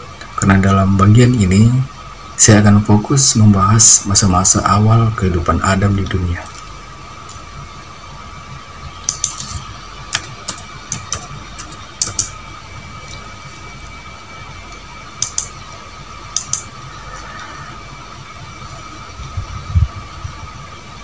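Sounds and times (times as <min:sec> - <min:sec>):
faint high whine: 0:00.0 - 0:21.0
low hum: 0:00.0 - 0:21.0
light sharp clicks: 0:16.4 - 0:16.7.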